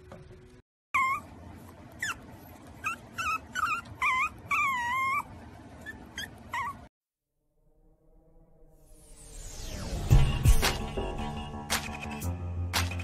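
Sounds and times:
puppy whimpering: 0:01.0 - 0:06.9.

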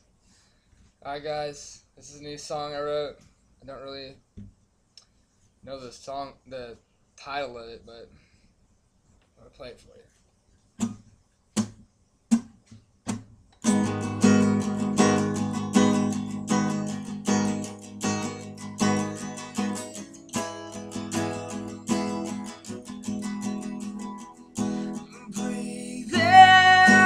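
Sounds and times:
acoustic guitar strumming: 0:10.8 - 0:27.0.

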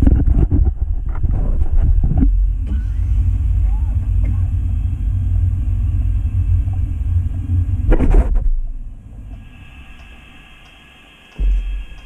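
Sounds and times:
model train rumbling on track: 0:02.8 - 0:07.9
loud clatter and jolt: 0:07.8 - 0:08.8.

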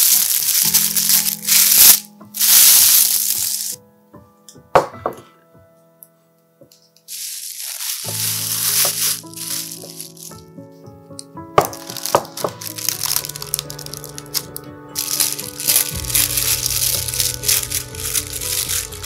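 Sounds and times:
plastic wrap crinkling: 0:00.0 - 0:03.8, 0:07.1 - 0:10.4, 0:11.6 - 0:19.0
background music: 0:00.0 - 0:19.0.

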